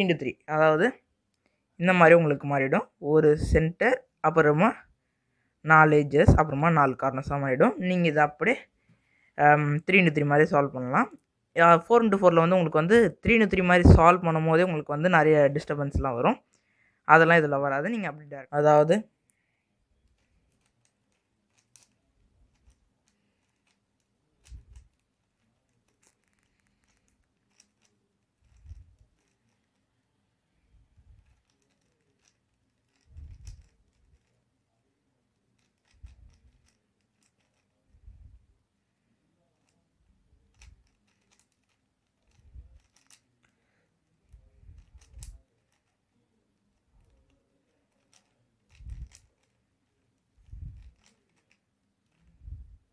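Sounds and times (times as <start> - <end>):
puzzle cube clicks: 20.0 - 30.0, 31.0 - 34.4, 35.6 - 37.7, 40.4 - 45.9, 47.0 - 49.6, 50.4 - 52.4.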